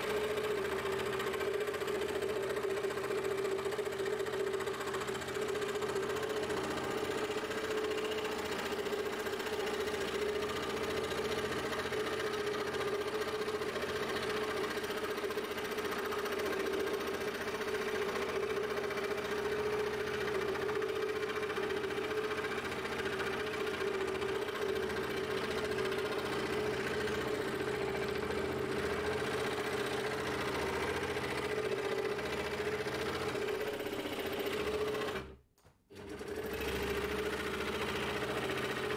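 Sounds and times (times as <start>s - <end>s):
scroll saw cutting wood: 15.8s - 38.9s.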